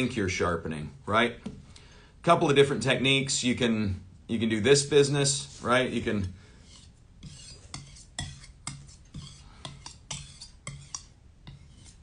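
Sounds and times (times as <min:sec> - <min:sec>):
knife scraping on whetstone: 0:06.6 - 0:12.0.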